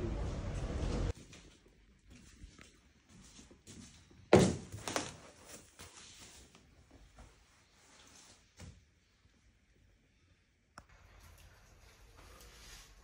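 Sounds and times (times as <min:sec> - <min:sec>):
rustling of things handled: 0:00.8 - 0:08.8.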